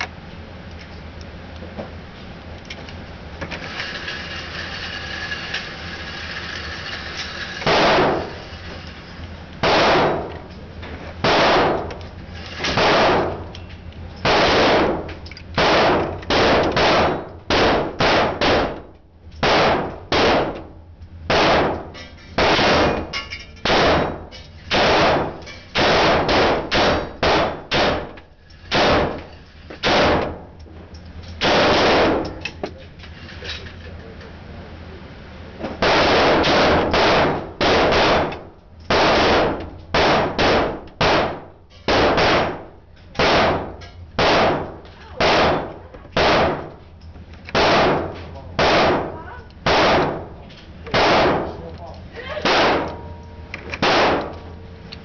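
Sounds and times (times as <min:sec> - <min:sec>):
gunshots echoing indoors: 0:07.6 - 0:08.4, 0:09.6 - 0:10.4, 0:11.2 - 0:12.0, 0:12.7 - 0:13.5, 0:14.2 - 0:30.4, 0:31.4 - 0:32.4, 0:35.8 - 0:46.8, 0:47.5 - 0:51.7, 0:52.4 - 0:53.2, 0:53.8 - 0:54.6.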